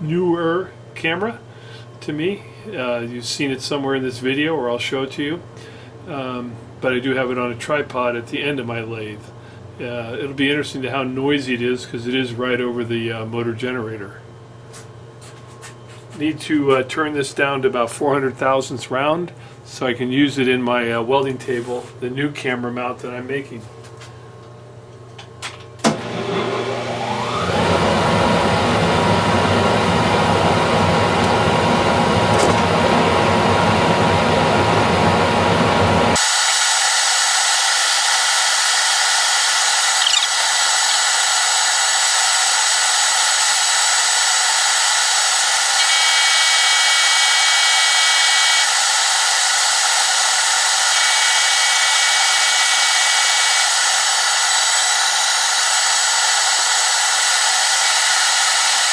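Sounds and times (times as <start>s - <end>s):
lathe motor whine: 25.8s - 58.9s.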